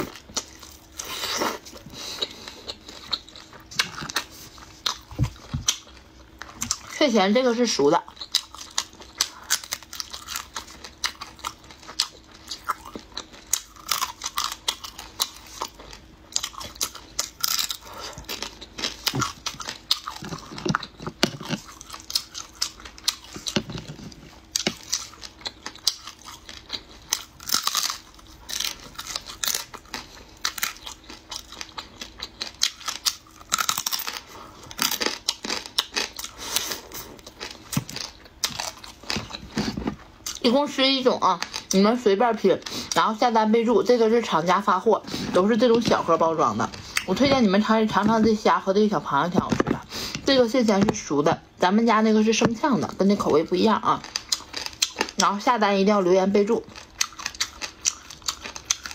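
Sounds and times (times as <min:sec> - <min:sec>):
chewing and biting: 0:00.0 - 0:07.0, 0:08.0 - 0:40.4, 0:53.9 - 0:55.3, 0:56.6 - 0:58.9
prawn shells tearing and cracking: 0:08.2 - 0:40.4.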